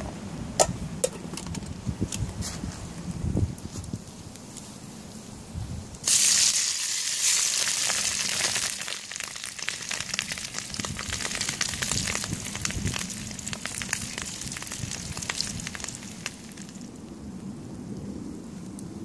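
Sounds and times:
food sizzling in hot oil: 0:06.0 - 0:16.8
oil crackling and popping: 0:06.0 - 0:17.0.

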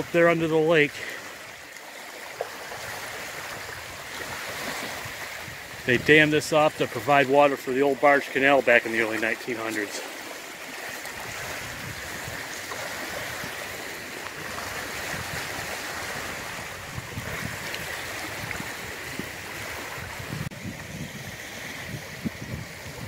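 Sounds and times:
waves lapping at shore: 0:00.0 - 0:23.0
wind buffeting microphone: 0:02.7 - 0:07.4, 0:11.2 - 0:23.0.

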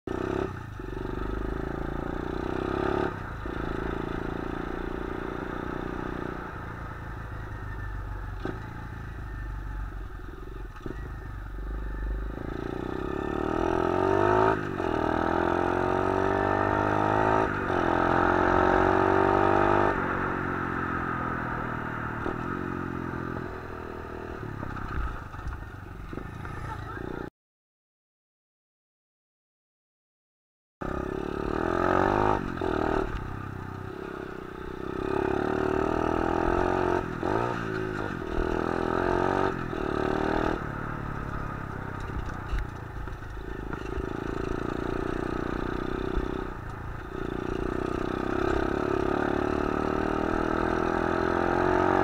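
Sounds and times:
pit bike engine revving: 0:43.4 - 0:52.0.

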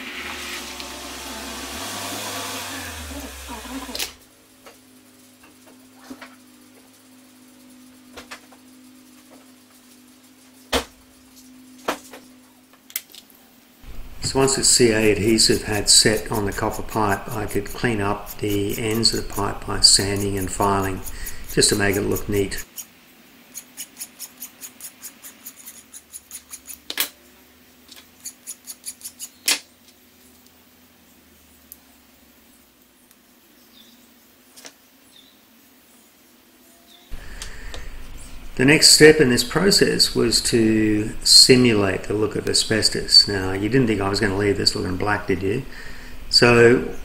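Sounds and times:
low hum: 0:13.8 - 0:22.6, 0:37.1 - 0:47.0
hand file rasping on metal pipe: 0:14.3 - 0:22.9, 0:23.6 - 0:26.8, 0:28.2 - 0:29.3.

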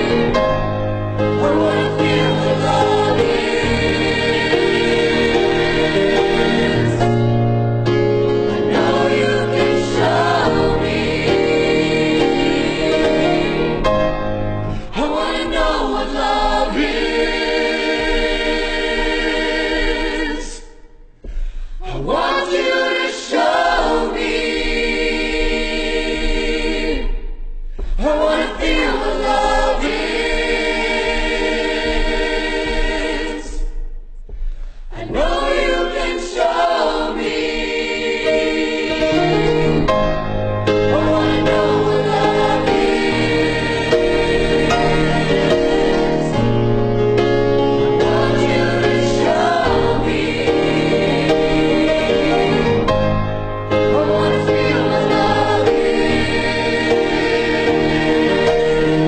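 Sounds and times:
choir singing: 0:00.0 - 0:34.0, 0:34.9 - 0:59.0
low accompaniment: 0:00.0 - 0:34.4.

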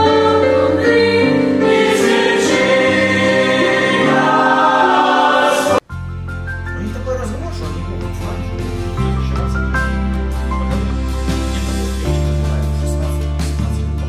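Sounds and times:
choir singing held chords: 0:00.0 - 0:05.9
low music accompaniment: 0:00.0 - 0:14.0.

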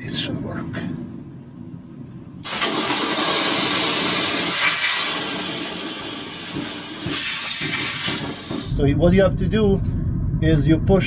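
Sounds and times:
compressed air hissing from hose: 0:02.4 - 0:08.7.

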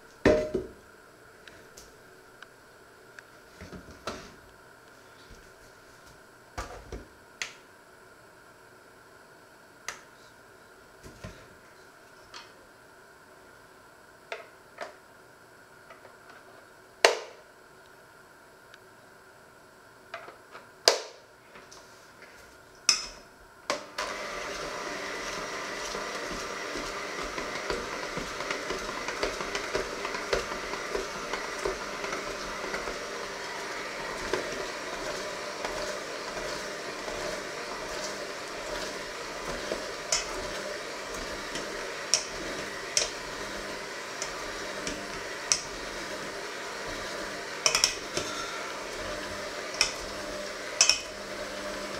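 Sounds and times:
electric mixer running: 0:23.7 - 0:51.9.

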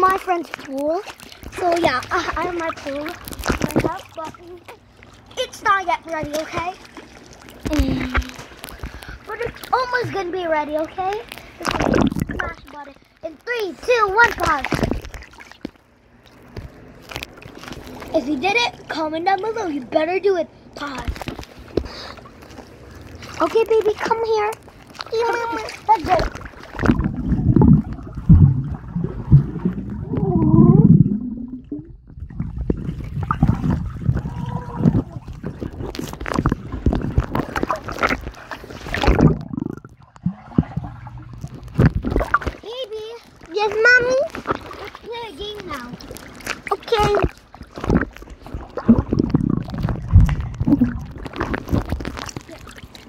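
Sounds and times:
muffled underwater water movement: 0:00.0 - 0:53.0
water splashing: 0:00.0 - 0:53.0
heavy underwater thumps: 0:26.8 - 0:38.2, 0:38.9 - 0:42.5, 0:47.8 - 0:52.3.

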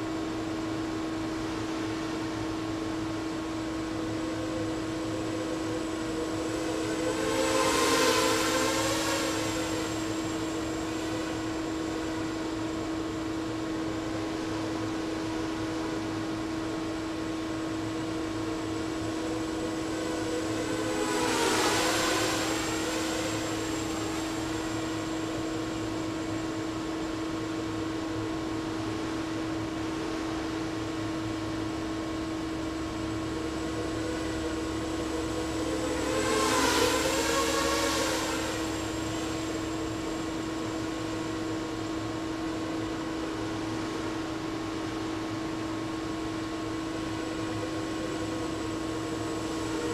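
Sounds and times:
steady hum: 0:00.0 - 0:49.9
drone motors buzzing: 0:04.0 - 0:11.4, 0:18.0 - 0:26.0, 0:32.8 - 0:41.0.

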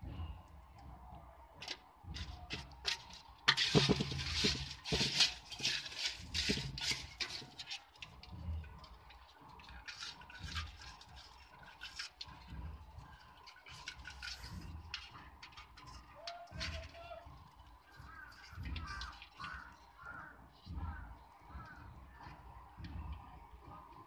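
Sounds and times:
water splashing and dripping: 0:01.5 - 0:24.0
crabs clicking and scraping: 0:01.6 - 0:24.0.

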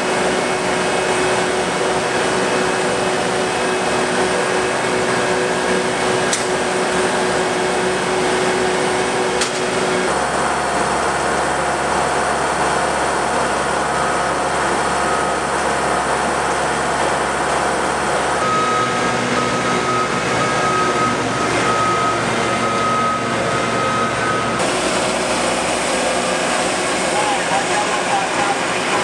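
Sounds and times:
heavy construction machinery running: 0:00.0 - 0:29.0
reversing alarm beeping: 0:18.3 - 0:25.5.

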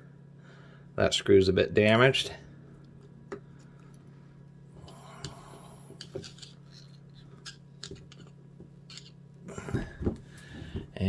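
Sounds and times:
steady low hum: 0:00.0 - 0:11.0
screwdriver clicking and scraping: 0:06.0 - 0:09.2.

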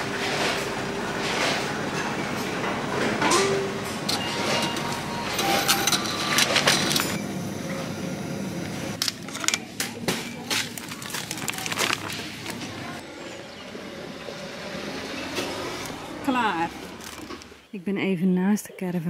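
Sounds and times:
supermarket bustle: 0:00.0 - 0:17.8
plastic packaging crinkling: 0:10.4 - 0:13.0.

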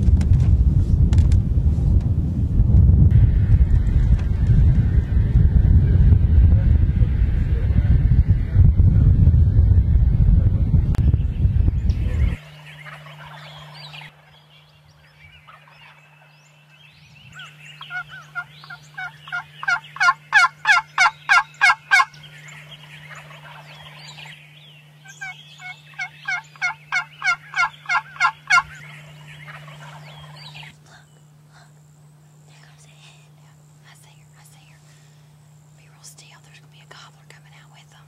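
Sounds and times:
low hum: 0:00.0 - 0:38.0
turkey yelping: 0:12.5 - 0:14.3, 0:17.4 - 0:24.3, 0:25.0 - 0:30.7.

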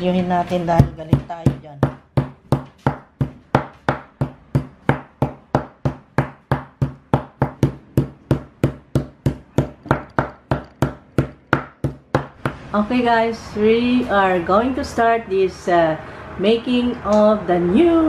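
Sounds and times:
meat mallet pounding on board: 0:00.8 - 0:12.6.

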